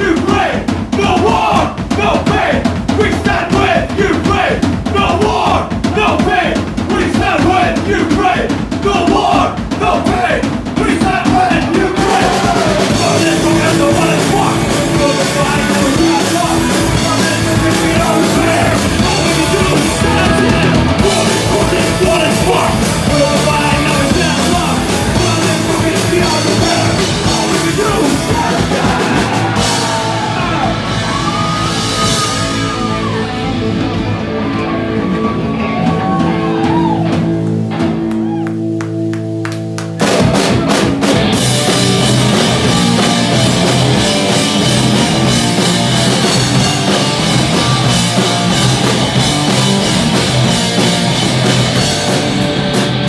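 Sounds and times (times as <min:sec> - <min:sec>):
person singing: 0:00.0 - 0:33.6
punk rock band playing: 0:00.0 - 0:53.0.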